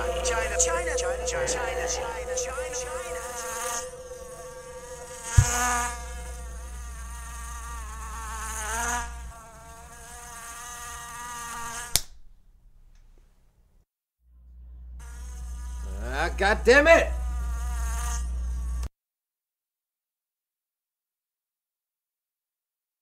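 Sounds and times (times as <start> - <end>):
insect buzzing: 0.0 - 12.0, 15.0 - 18.9.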